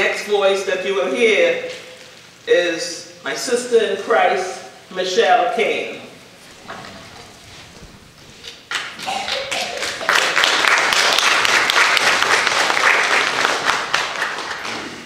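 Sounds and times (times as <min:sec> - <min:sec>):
crowd applauding: 0:06.6 - 0:15.0.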